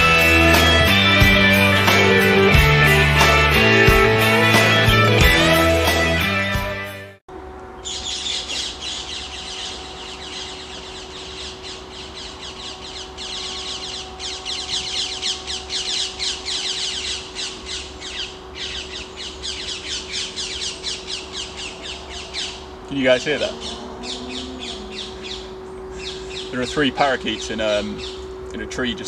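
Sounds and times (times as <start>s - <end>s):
intro music: 0.0s - 7.2s, 21.4s - 27.3s
parakeets squawking: 7.8s - 28.3s.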